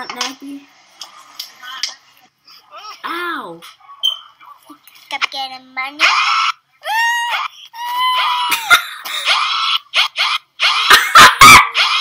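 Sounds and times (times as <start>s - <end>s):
high-pitched screaming: 6.0s - 8.6s.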